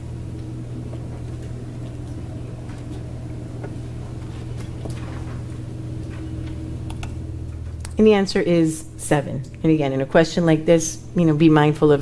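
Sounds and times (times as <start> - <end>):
ventilation hum: 0.0 - 12.0.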